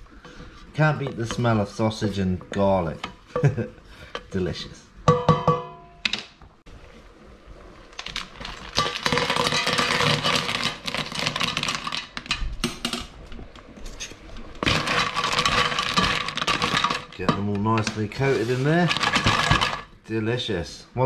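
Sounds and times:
shells rattling when stirred: 8.4s - 12.3s, 14.6s - 17.3s, 18.7s - 19.9s.

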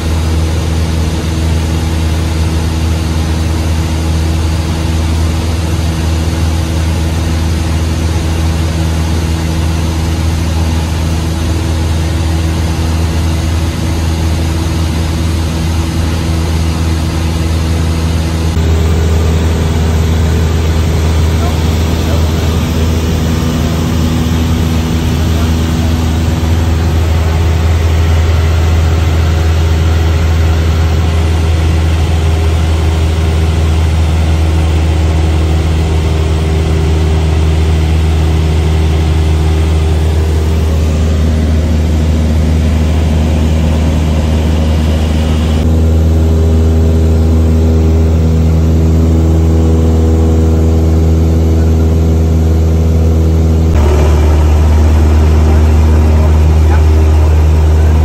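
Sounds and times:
aircraft engine and propeller drone: 0.0s - 58.0s.

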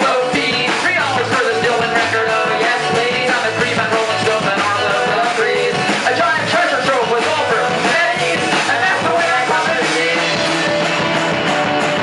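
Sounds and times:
drums: 0.0s - 12.0s
electric bass: 0.0s - 12.0s.

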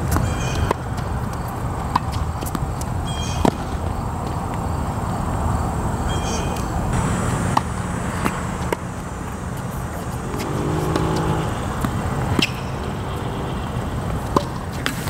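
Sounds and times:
tennis ball bouncing: 0.0s - 4.6s, 6.6s - 15.0s
low background rumble: 6.7s - 14.7s
racquet striking tennis ball: 6.9s - 15.0s.

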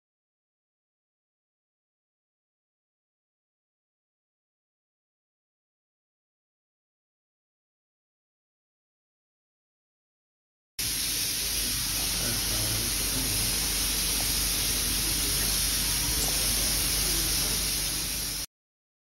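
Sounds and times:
steam hissing: 10.8s - 18.5s.

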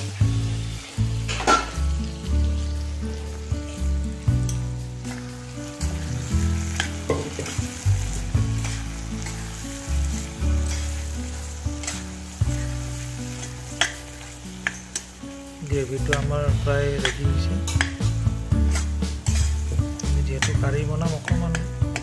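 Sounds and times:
food sizzling in a pan: 0.0s - 22.0s
low background music: 0.0s - 22.0s
metal spatula scraping a pan: 4.5s - 15.2s, 16.1s - 20.7s.

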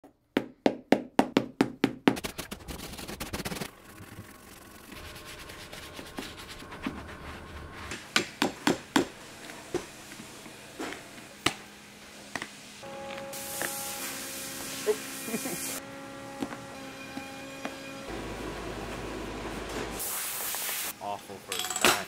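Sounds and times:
brush scrubbing leather: 2.1s - 7.9s.

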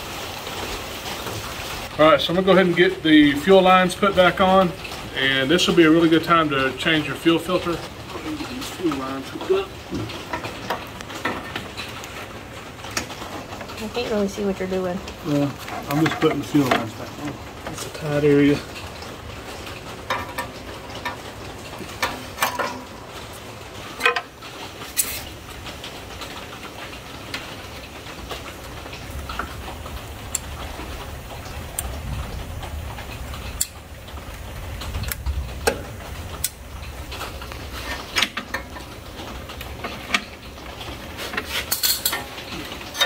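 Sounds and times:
steady background hiss: 0.0s - 43.0s
clicks and metallic knocks: 9.9s - 12.2s, 15.6s - 17.9s, 19.7s - 23.4s, 24.0s - 25.3s, 35.0s - 43.0s.

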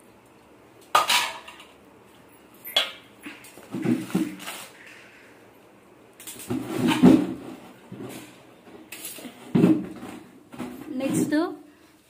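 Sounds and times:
kitchen utensils knocking and clattering: 0.9s - 1.8s, 6.3s - 8.3s.

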